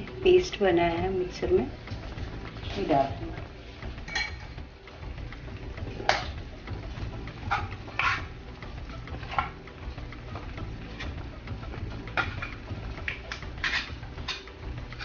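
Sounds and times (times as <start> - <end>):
spatula stirring in a frying pan: 1.4 - 15.0
spatula scraping a pan: 7.4 - 8.4, 9.0 - 9.6, 12.1 - 15.0.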